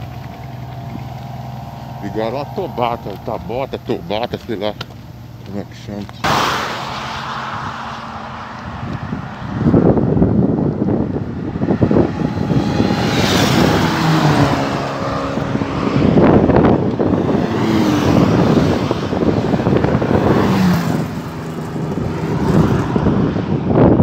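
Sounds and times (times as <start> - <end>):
cars passing at highway speed: 0.0 - 24.0
motorcycle passing: 0.0 - 24.0.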